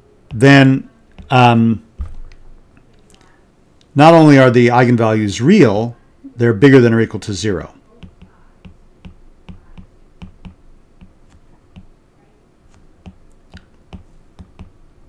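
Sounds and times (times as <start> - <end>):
stylus tapping on glass screen: 8.0 - 11.9, 13.0 - 14.8.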